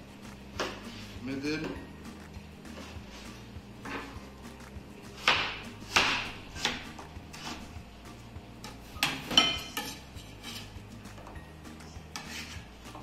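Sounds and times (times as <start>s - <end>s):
quiet background music: 0.0s - 13.0s
knife chopping on wooden board: 5.1s - 7.7s.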